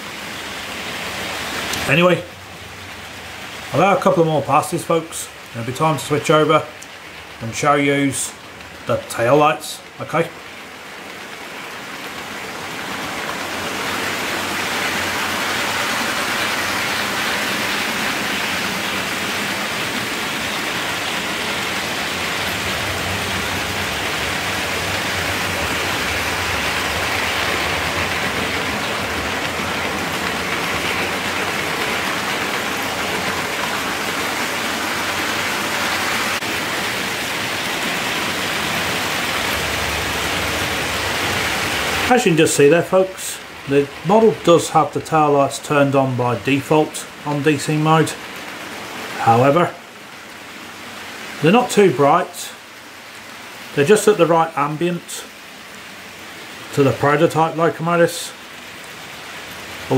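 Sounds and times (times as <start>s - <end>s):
model train wheels rolling on rail: 19.8s - 35.5s.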